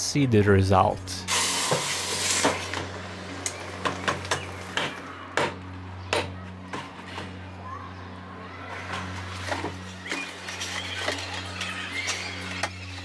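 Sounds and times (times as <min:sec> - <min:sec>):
hot mold hissing in water: 0:01.3 - 0:02.8.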